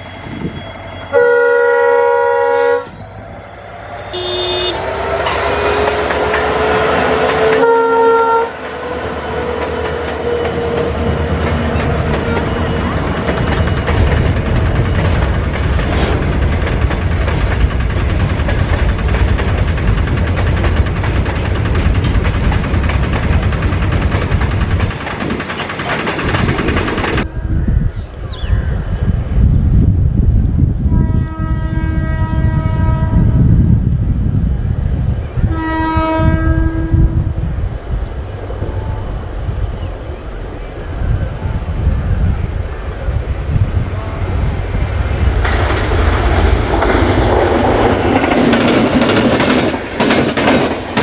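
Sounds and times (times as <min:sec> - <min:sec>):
locomotive engine whine: 0:00.0 - 0:18.7, 0:21.9 - 0:49.8
train horn: 0:01.0 - 0:03.0, 0:04.1 - 0:13.2, 0:27.2 - 0:28.0, 0:30.9 - 0:33.5, 0:35.4 - 0:37.4
freight wagons rumbling and clattering: 0:08.7 - 0:27.3.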